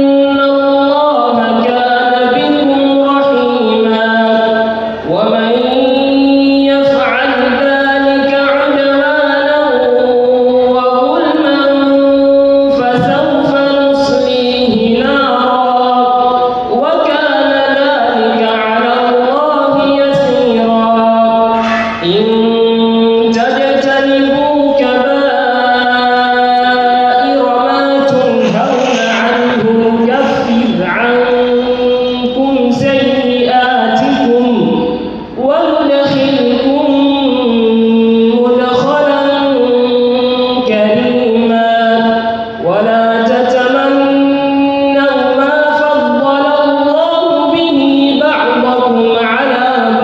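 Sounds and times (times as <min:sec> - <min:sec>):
person chanting melodic recitation: 0:00.0 - 0:50.0.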